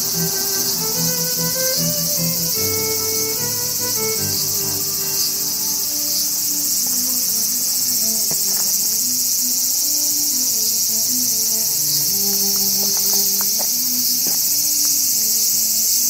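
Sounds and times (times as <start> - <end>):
soft background music: 0.0 - 13.6
insects chirping chorus: 0.0 - 16.0.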